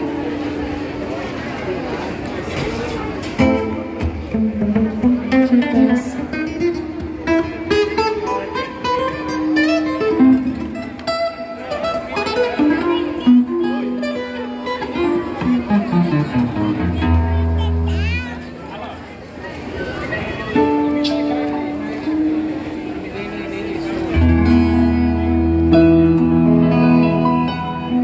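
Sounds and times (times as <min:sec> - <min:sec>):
guitar playing single notes: 0:00.0 - 0:01.4, 0:03.3 - 0:18.7, 0:20.6 - 0:28.0
live band music: 0:03.2 - 0:18.5, 0:23.9 - 0:28.0.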